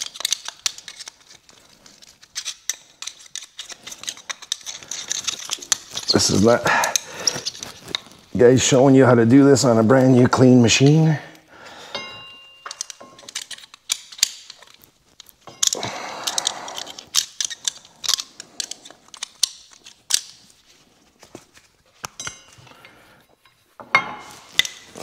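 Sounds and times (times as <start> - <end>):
metal pick scraping and clicking: 0.0 - 8.3, 11.9 - 20.8, 22.0 - 25.0.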